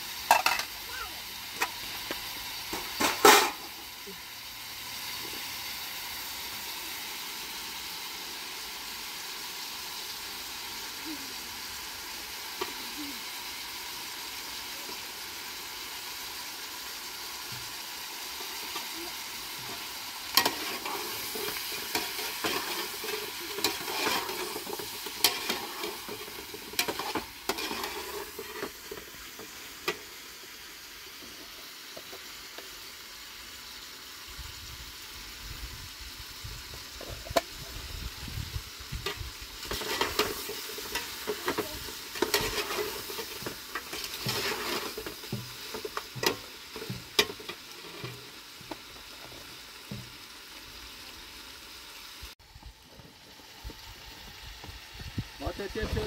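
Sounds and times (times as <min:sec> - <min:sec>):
meat sizzling in a pot: 0:00.0 - 0:56.0
metal spoon scraping a pot: 0:19.7 - 0:28.7, 0:42.2 - 0:48.2.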